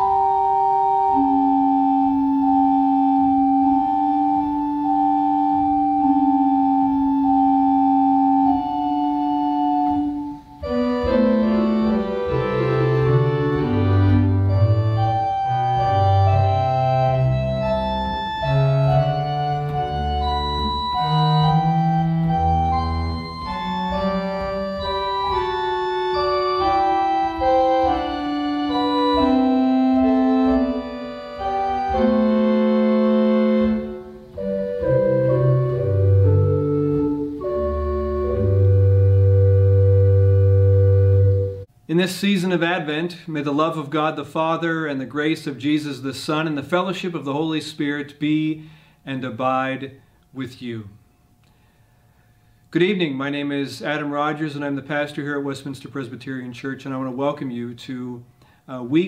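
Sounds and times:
church organ playing: 0.0s - 50.9s.

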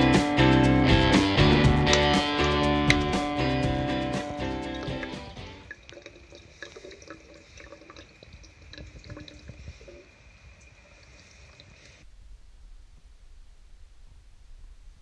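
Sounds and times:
water dripping into bottle: 4.1s - 10.8s.

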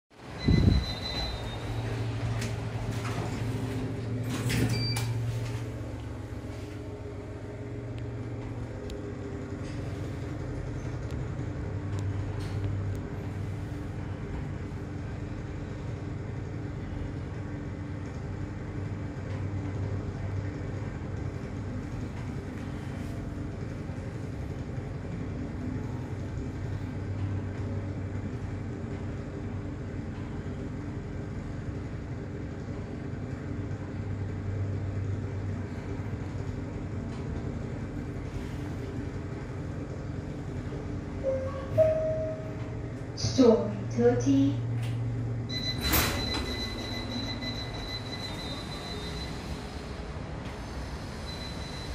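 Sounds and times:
lift humming: 0.2s - 51.9s
lift doors shutting: 0.3s - 6.1s, 41.2s - 43.4s, 44.6s - 51.9s.

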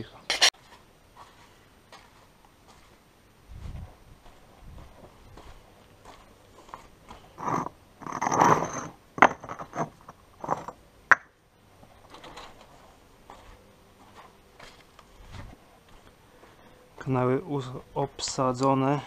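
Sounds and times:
concrete blocks scraping together: 7.3s - 10.8s
concrete blocks clacking: 7.4s - 11.3s.

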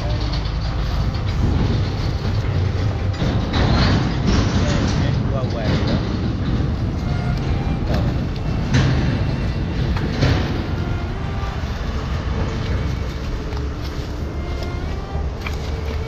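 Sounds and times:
road traffic rumble: 0.0s - 16.0s
footsteps in dry leaves: 11.0s - 16.0s.

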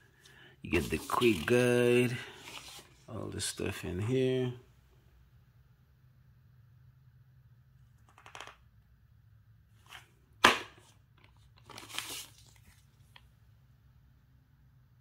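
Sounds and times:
plastic bag crinkling: 11.6s - 13.2s.

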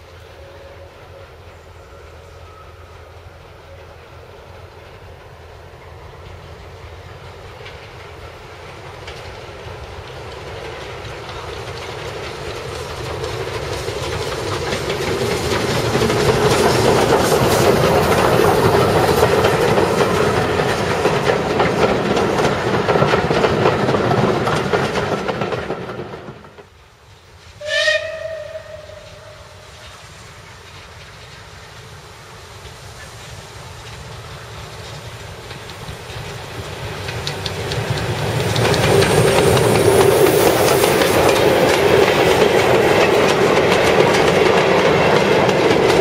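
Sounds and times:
steam locomotive whistle: 0.1s - 4.4s, 27.6s - 30.0s
train wheels clattering over rail joints: 4.6s - 46.0s.

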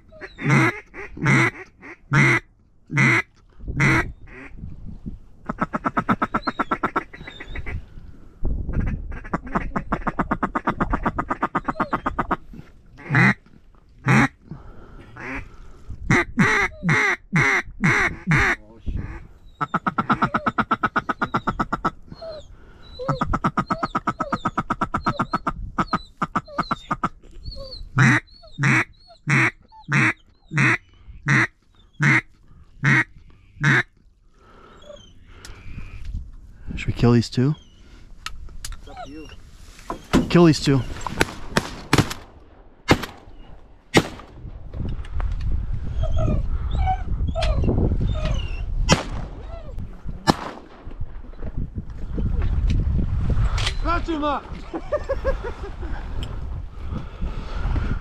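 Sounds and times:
duck call quacks: 0.2s - 4.5s, 13.0s - 13.4s, 16.1s - 21.9s, 28.0s - 33.9s.

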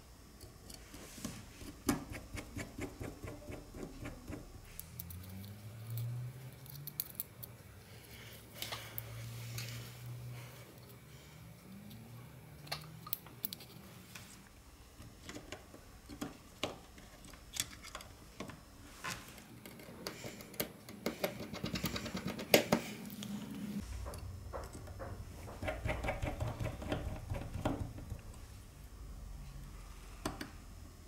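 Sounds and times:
low steady hum: 21.9s - 31.0s
small clicks and taps of tools: 30.2s - 30.6s.

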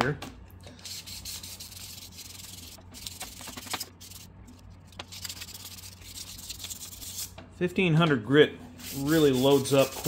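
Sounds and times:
sandpaper rubbing: 0.8s - 4.3s, 5.0s - 7.3s, 8.8s - 10.0s.

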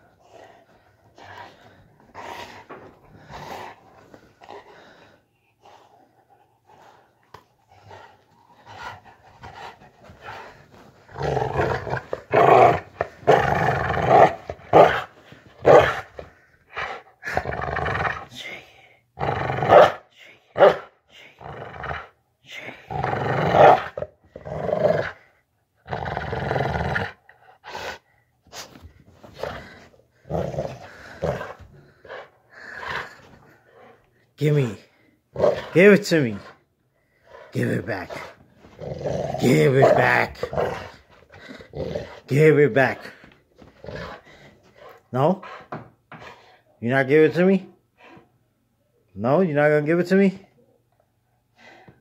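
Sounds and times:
dog growling: 0.0s - 5.1s, 7.7s - 18.4s, 21.4s - 28.0s, 29.2s - 34.0s, 34.8s - 36.6s, 37.2s - 45.8s.

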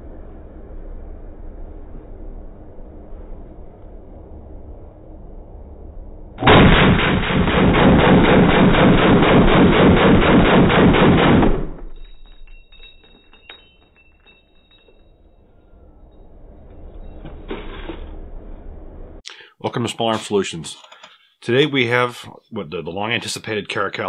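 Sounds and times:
rifle rapid fire: 6.4s - 11.9s.

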